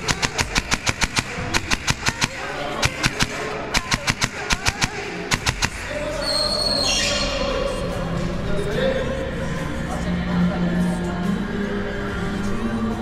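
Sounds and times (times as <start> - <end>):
airsoft rifle shots: 0.0 - 6.1.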